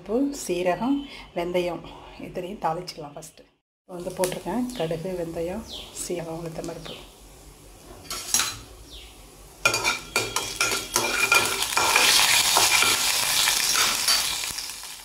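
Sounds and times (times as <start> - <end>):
seeds spluttering in hot oil: 3.9 - 5.4, 9.5 - 15.0
metal spatula scraping pan: 9.6 - 14.5.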